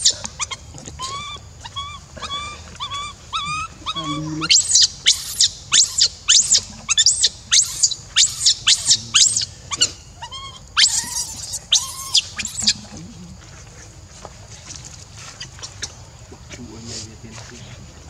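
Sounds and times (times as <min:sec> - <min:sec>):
infant monkey shrill squeals: 0:00.0 - 0:12.8
low wavering monkey call: 0:00.0 - 0:13.3.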